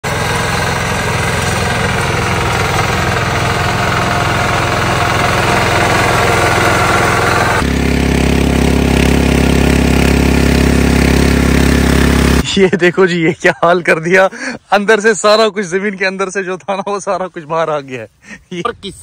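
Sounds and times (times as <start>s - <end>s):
power tiller engine running: 0.0s - 12.4s
power weeder engine running: 0.0s - 12.4s.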